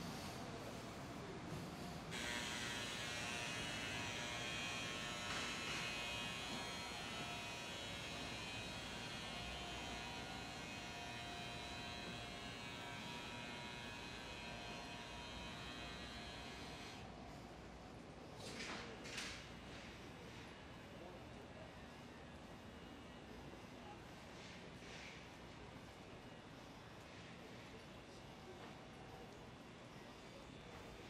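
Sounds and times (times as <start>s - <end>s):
electrical hum and buzz: 0.0s - 17.8s.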